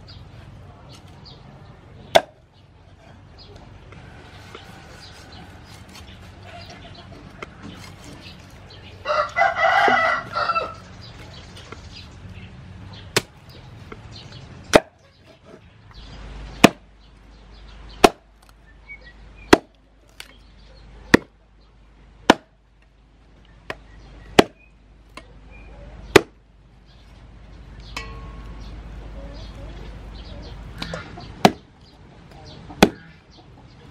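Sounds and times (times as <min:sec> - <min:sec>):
cleaver chopping on wooden board: 0:02.1 - 0:02.4, 0:14.7 - 0:15.0, 0:18.0 - 0:18.2, 0:19.5 - 0:19.7, 0:22.3 - 0:22.5, 0:24.4 - 0:24.6, 0:26.1 - 0:26.4, 0:30.8 - 0:31.7, 0:32.8 - 0:33.1
rooster crowing: 0:09.0 - 0:10.9.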